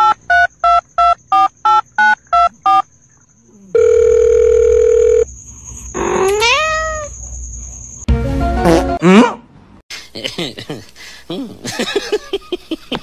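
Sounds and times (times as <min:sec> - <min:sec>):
steady phone tone: 0:03.7 - 0:05.3
cat meowing: 0:06.2 - 0:07.1.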